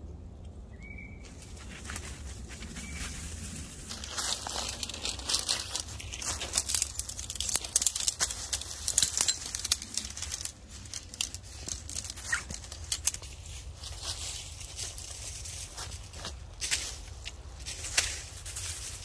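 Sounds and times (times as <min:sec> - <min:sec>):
leaves crackling underfoot: 0:01.1 - 0:19.0
tent fabric crinkling: 0:01.7 - 0:17.0
tent poles clicking together: 0:04.0 - 0:13.4.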